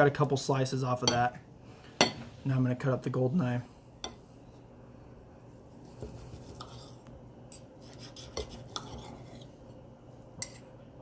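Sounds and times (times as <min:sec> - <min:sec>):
cutlery scraping a ceramic plate: 0:06.0 - 0:09.6, 0:10.4 - 0:10.7.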